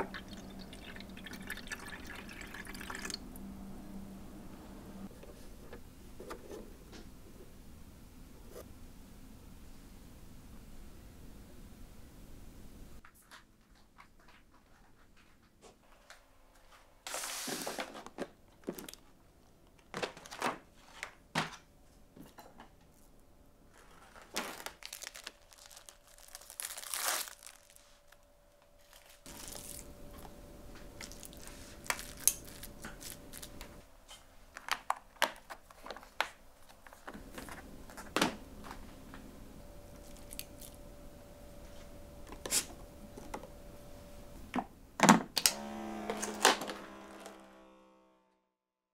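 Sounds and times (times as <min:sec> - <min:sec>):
plastic film tearing and crinkling: 0:23.7 - 0:28.2, 0:28.8 - 0:29.9, 0:31.0 - 0:33.7.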